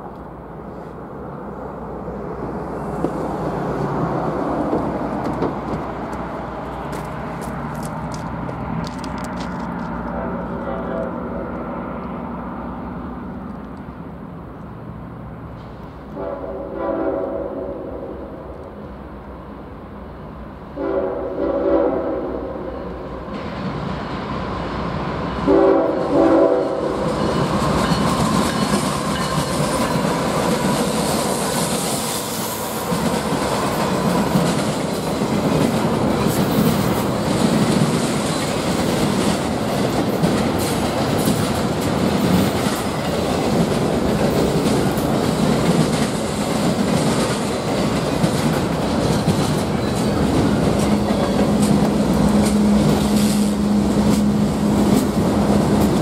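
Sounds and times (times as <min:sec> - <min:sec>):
locomotive engine hum: 0:00.0 - 0:16.4, 0:21.8 - 0:56.0
train wheels clicking on rails: 0:02.7 - 0:12.2, 0:23.2 - 0:56.0
train horn blasts: 0:16.1 - 0:18.4, 0:20.8 - 0:22.8, 0:25.5 - 0:27.2.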